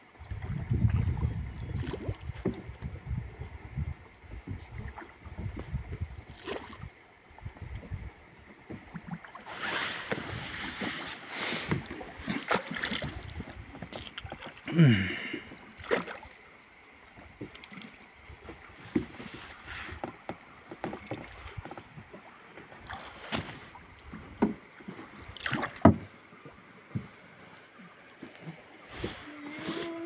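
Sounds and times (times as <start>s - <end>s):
water moving against boat: 0.0s - 30.0s
pole knocking against hull: 24.1s - 24.6s, 25.4s - 26.1s.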